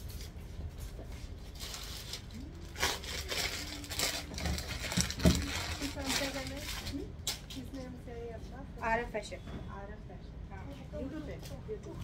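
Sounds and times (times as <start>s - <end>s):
clothes rustling and crinkling: 0.0s - 7.9s.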